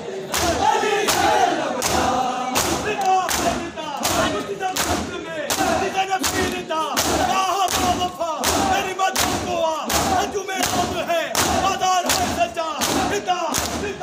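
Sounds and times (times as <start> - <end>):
group chanting: 0.0 - 14.0
men slapping chests in unison: 0.2 - 14.0.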